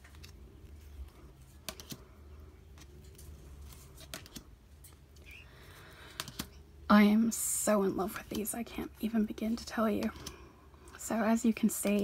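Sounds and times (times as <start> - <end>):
playing cards sliding clicks: 1.6 - 2.0, 6.1 - 6.5.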